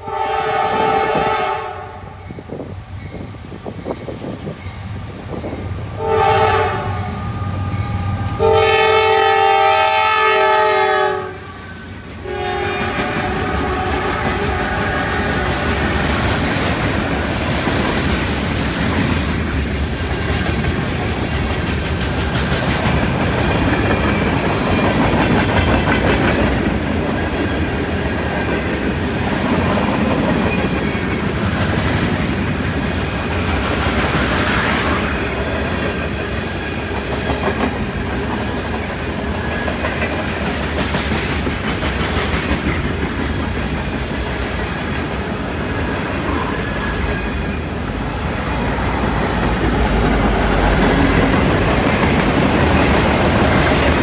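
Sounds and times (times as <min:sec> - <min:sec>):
train wheels clicking over rail joints: 0:11.4 - 0:54.0.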